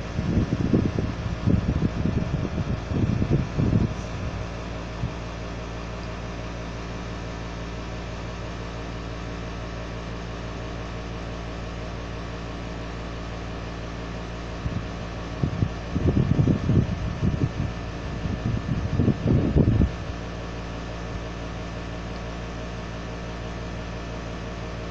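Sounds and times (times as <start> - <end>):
loud low rumbling bursts: 0.0 - 6.2, 14.6 - 20.2.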